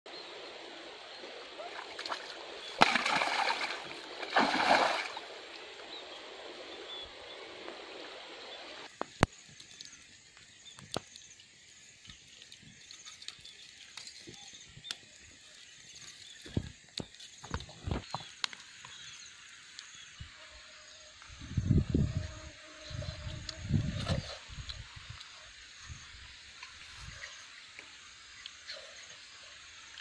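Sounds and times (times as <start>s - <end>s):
stream rushing faintly: 0.1s - 10.2s
water splashing by hand: 1.6s - 5.6s
campfire crackling and popping: 8.9s - 15.4s, 16.4s - 19.0s.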